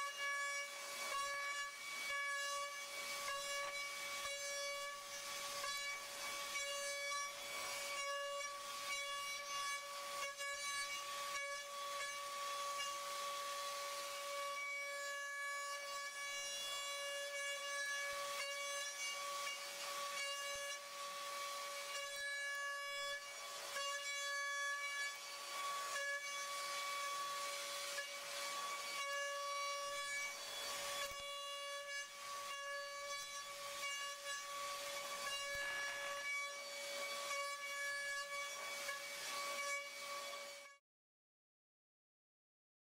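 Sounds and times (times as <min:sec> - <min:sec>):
milling machine cutting metal: 0:19.1 - 0:40.6.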